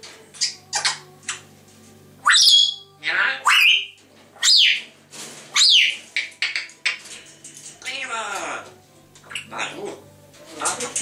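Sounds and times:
parrot whistling and squawking: 0.4 - 1.0, 2.2 - 4.9, 5.5 - 7.0.

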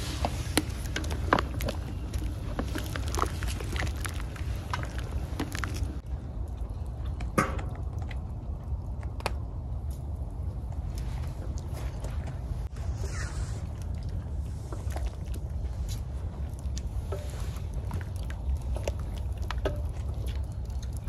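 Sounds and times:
wooden spoon stirring thick soup: 0.0 - 6.0, 14.2 - 21.0
steady low rumble: 0.0 - 21.0.

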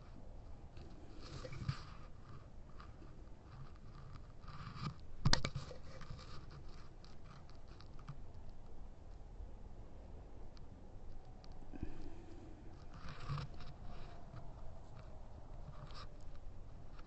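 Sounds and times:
fingers rubbing recording device: 0.8 - 8.1, 11.8 - 17.0.

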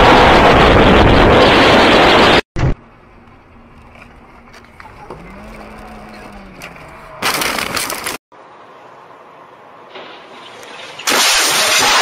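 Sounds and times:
car road noise: 2.7 - 11.1
loud harsh crash: 10.9 - 12.0.

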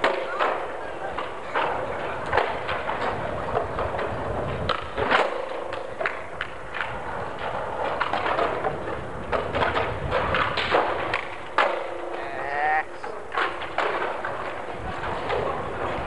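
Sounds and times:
skateboard clacks on ledge: 0.0 - 16.0
skateboards rolling on paving: 0.0 - 16.0
person's wavering high call: 12.2 - 13.0.

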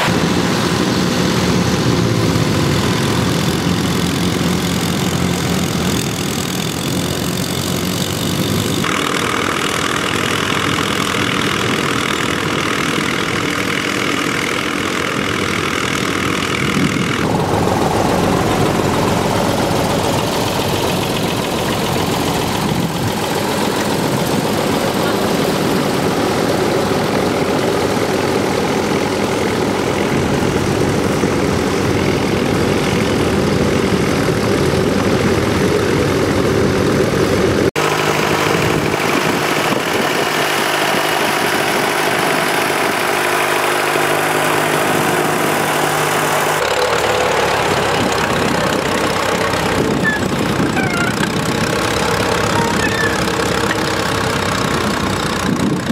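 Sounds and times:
tractor engine running: 0.0 - 55.9.

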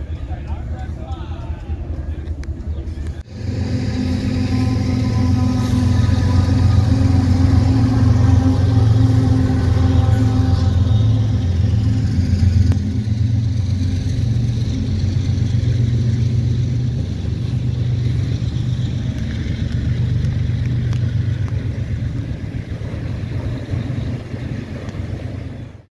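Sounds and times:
diesel locomotive engines rumbling: 0.0 - 25.9.

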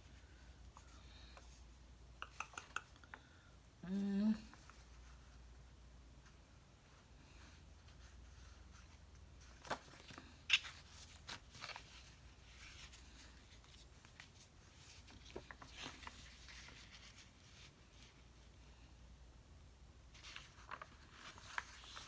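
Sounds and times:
paper rustling and crinkling: 7.5 - 18.4, 20.1 - 22.0.

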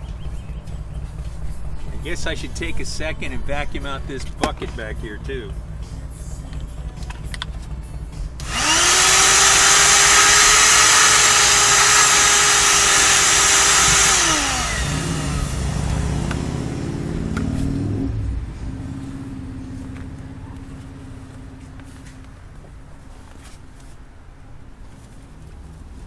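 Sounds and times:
low rumbling: 0.0 - 23.0
shop vacuum motor whining: 8.4 - 16.5.

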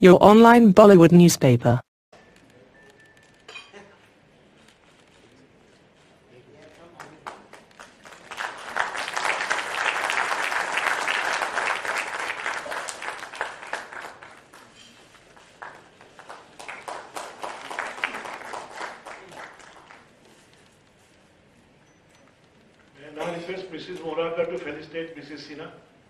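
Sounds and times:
audience applauding: 7.0 - 20.2.

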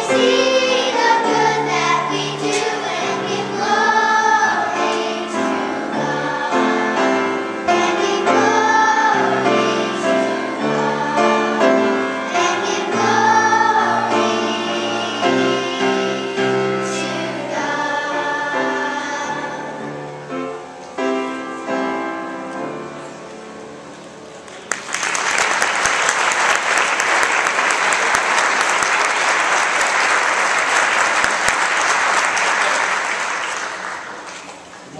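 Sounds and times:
children's choir singing: 0.0 - 23.2, 25.2 - 34.7
applause: 24.5 - 34.8.

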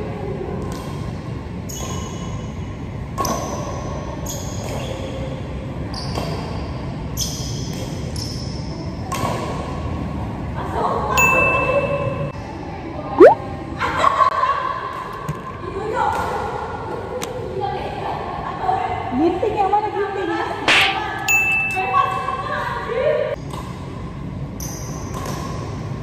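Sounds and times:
high held tone: 11.2 - 12.3, 21.2 - 22.2
badminton racket hitting shuttlecock: 20.7 - 21.8.

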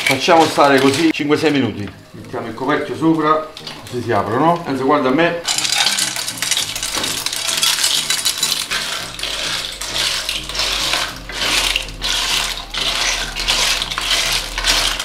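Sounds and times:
clam shells clinking on metal pan: 5.5 - 15.0.

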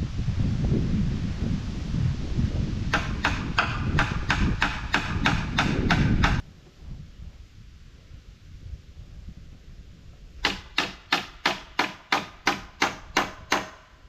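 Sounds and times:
wind rumble on microphone: 0.0 - 14.0
hammer driving nail into wood: 2.9 - 6.4, 10.4 - 13.9.

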